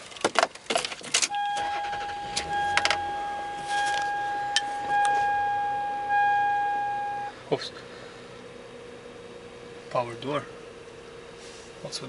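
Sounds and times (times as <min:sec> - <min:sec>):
car warning chime: 0:01.3 - 0:07.4.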